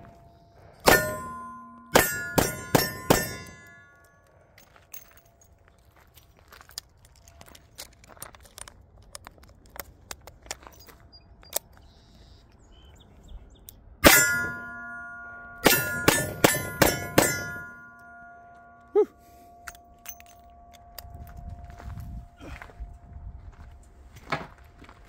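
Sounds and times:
steel plates ringing: 0.0s - 4.3s, 14.0s - 21.7s.

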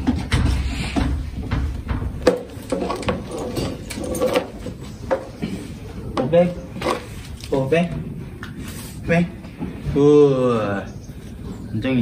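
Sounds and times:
leather saddle knocks and creaks: 0.0s - 5.4s.

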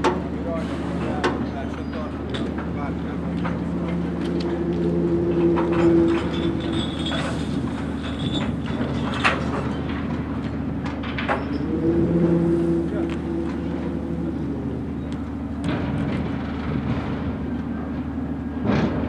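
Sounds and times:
low engine drone: 0.0s - 19.0s
sharp clanks and knocks: 1.0s - 11.7s, 15.0s - 19.0s.

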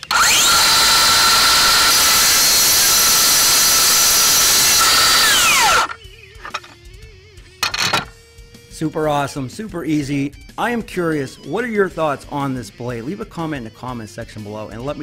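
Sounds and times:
circular saw whine: 0.0s - 6.8s
saw screeching through steel pipe: 0.0s - 6.8s.

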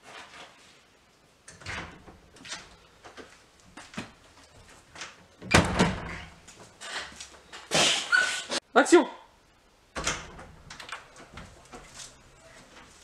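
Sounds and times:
door banging: 5.4s - 6.4s, 10.0s - 11.4s.

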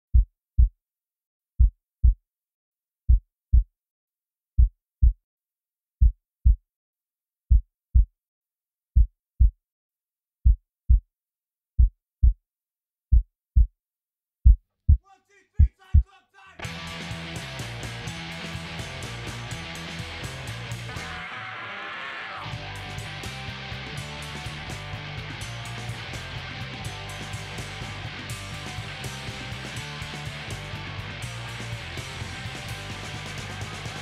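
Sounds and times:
heartbeat thumps: 1.6s - 2.2s, 7.5s - 8.1s, 9.0s - 9.6s, 11.8s - 12.4s, 13.1s - 13.7s, 14.4s - 16.1s.

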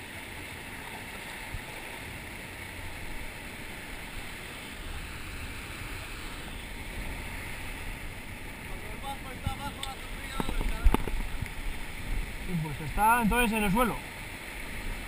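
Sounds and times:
wind rumble on microphone: 9.4s - 12.6s.

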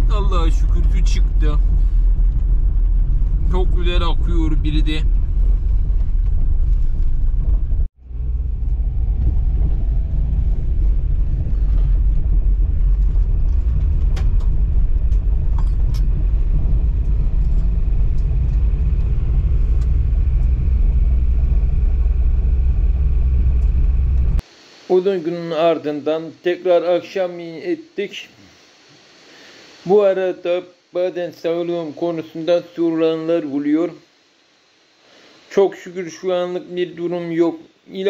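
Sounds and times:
car engine and tyres rumbling: 0.0s - 24.4s.

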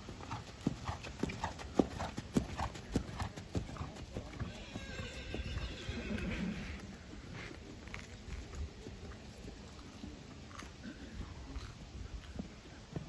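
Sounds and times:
horse hoofbeats on sand: 0.0s - 5.6s.

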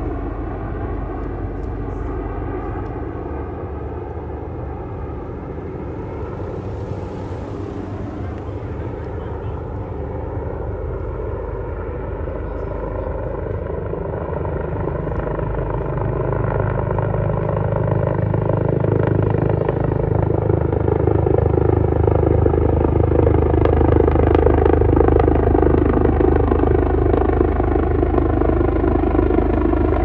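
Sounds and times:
helicopter engine and rotor: 0.0s - 30.0s.

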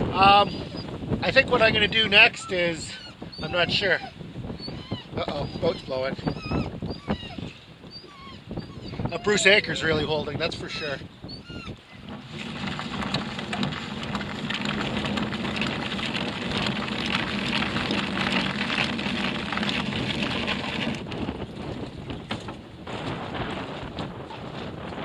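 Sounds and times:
wind buffeting microphone: 0.0s - 25.0s
water splashing against hull: 11.6s - 25.0s.

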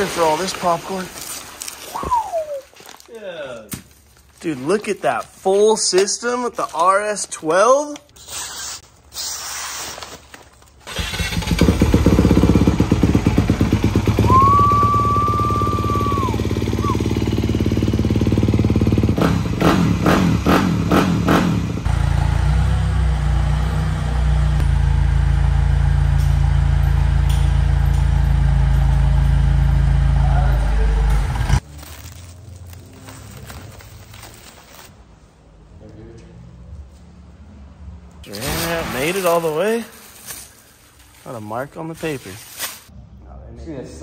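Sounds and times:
dirt bike engine running loud: 11.0s - 31.6s.

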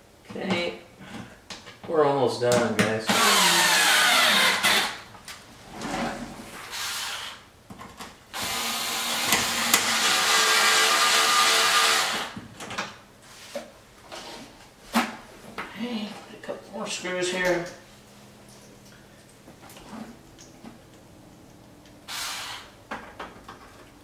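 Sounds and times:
cordless drill whining: 3.1s - 5.0s, 6.7s - 7.4s, 8.4s - 12.4s, 22.1s - 22.7s.

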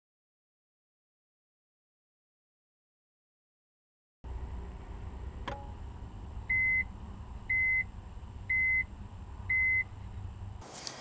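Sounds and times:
low steady rumble: 4.3s - 10.6s
microwave click: 5.4s - 5.8s
microwave beeps: 6.5s - 6.9s, 7.5s - 7.9s, 8.5s - 8.9s, 9.5s - 9.9s.

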